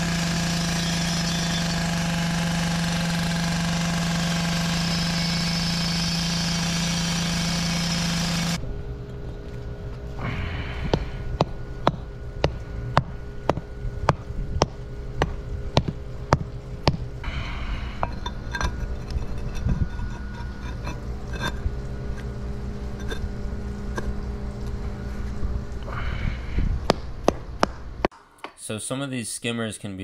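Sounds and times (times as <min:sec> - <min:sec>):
mallet tapping concrete paver: 0:10.9 - 0:17.0
stone pavers scraping and clinking: 0:18.0 - 0:24.8.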